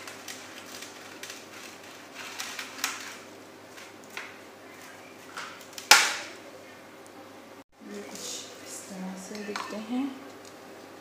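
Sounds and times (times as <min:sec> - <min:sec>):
soft crackles and rustles: 0:00.0 - 0:05.9.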